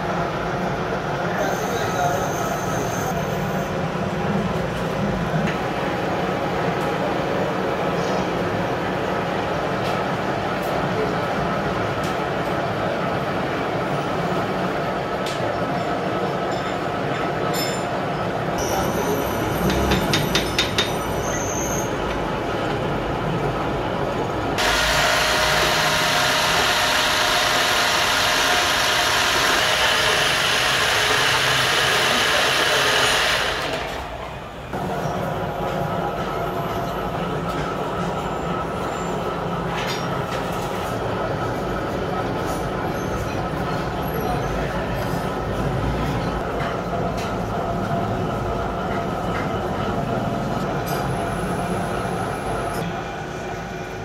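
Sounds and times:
thin high whine: 0:01.3 - 0:03.8
machine whirring and hissing: 0:18.6 - 0:54.0
machine grinding drone: 0:24.6 - 0:33.8.

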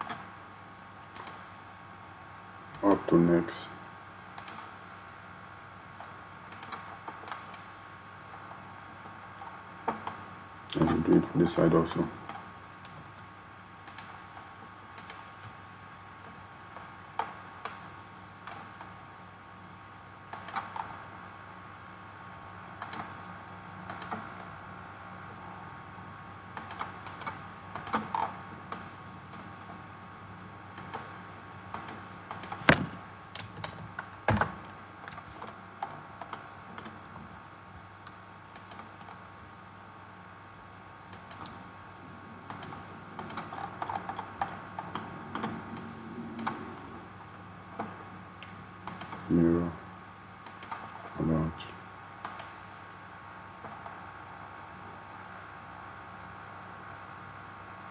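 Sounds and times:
faint steady hum: 0:00.0 - 0:57.9
mouse and keyboard clicks: 0:01.2 - 0:01.4, 0:04.4 - 0:04.7, 0:06.5 - 0:07.7.

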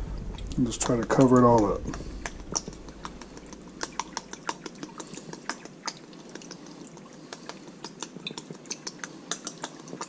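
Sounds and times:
sauce dripping into a dish: 0:00.2 - 0:10.0.

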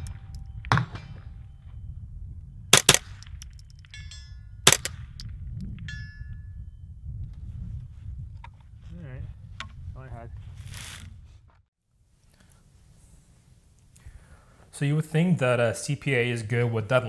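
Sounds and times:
rifle shots: 0:02.7 - 0:03.6, 0:04.7 - 0:05.2
steel targets pinging: 0:02.7 - 0:05.2.

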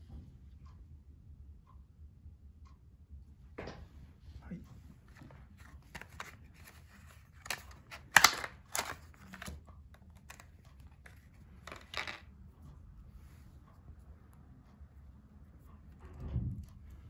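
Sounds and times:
plastic packaging crackling: 0:05.8 - 0:09.6.

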